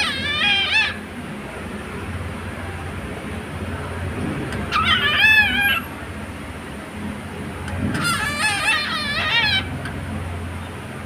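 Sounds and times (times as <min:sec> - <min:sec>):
cockatiel warbling: 0:00.0 - 0:01.0, 0:04.7 - 0:05.9, 0:08.0 - 0:09.8.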